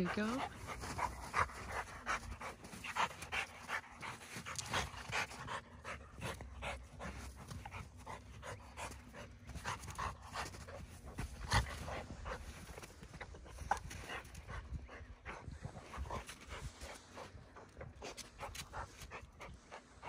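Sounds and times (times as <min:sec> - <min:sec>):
dog panting: 0:00.0 - 0:20.0.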